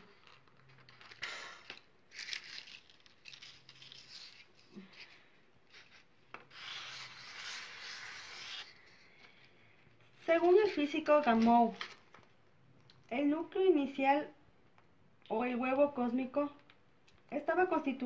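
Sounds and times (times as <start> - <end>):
rubbing and rustling on tabletop: 2.1 - 9.5, 10.1 - 12.2.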